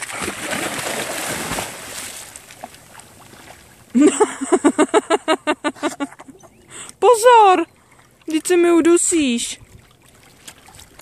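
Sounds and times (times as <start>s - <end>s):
dog splashing in water: 0.0s - 3.7s.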